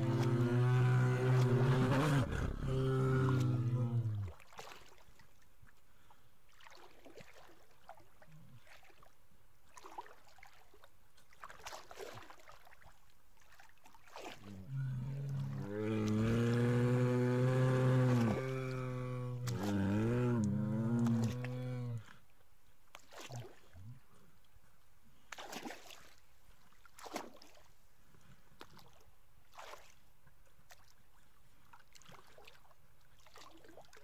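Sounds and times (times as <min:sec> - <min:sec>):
bear roaring: 0:00.0 - 0:04.3, 0:14.4 - 0:22.1
water sloshing and splashing: 0:00.0 - 0:22.3, 0:22.9 - 0:24.0, 0:25.2 - 0:27.9, 0:28.6 - 0:34.0.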